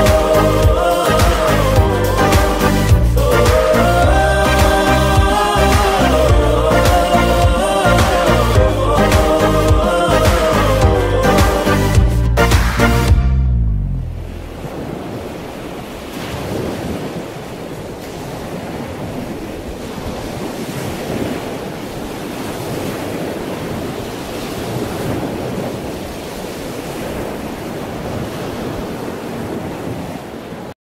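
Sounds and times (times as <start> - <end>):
wind buffeting microphone: 14.0 - 30.7.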